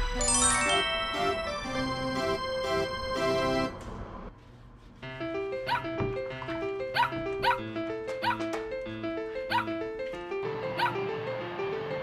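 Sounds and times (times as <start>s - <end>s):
background music with simple melody: 0.0s - 4.0s, 5.0s - 12.0s.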